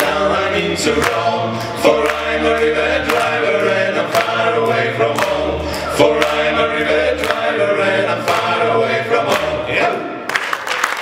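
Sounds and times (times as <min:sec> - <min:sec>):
male vocal quartet singing: 0:00.0 - 0:10.2.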